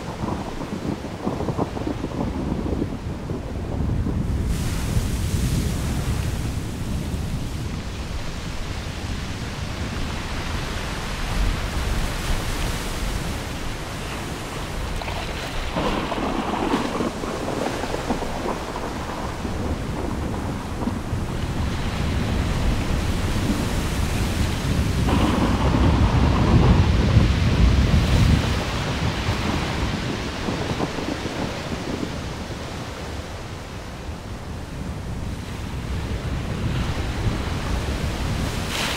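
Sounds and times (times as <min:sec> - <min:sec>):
rolling thunder: 0:00.0 - 0:08.0, 0:14.2 - 0:33.3
steady rain: 0:00.0 - 0:38.9.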